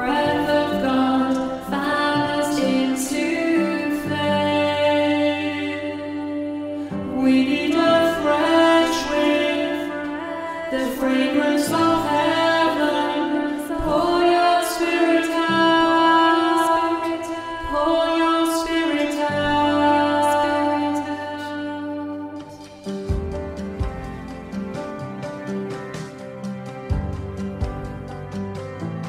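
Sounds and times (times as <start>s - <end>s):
worship song singing: 0.0s - 29.0s
held accompanying chords: 18.1s - 29.0s.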